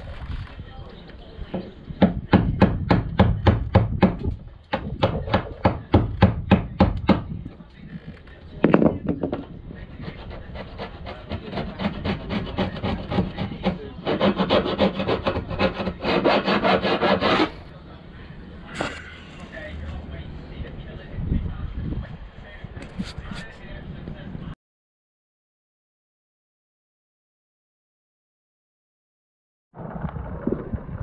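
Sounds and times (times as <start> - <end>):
hand sanding paint: 10.0 - 17.6.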